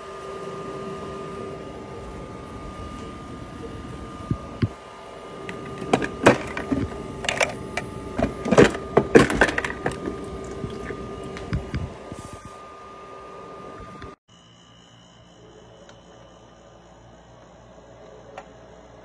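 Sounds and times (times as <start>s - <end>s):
ice maker humming: 0.0s - 14.2s
ice clattering in plastic basket: 8.2s - 10.2s.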